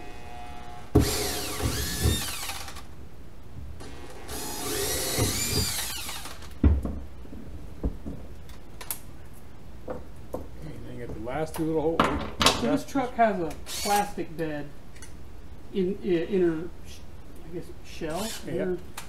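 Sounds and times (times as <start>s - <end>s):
power drill motor: 0.3s - 2.8s, 3.8s - 6.5s, 13.7s - 14.0s, 18.1s - 18.5s.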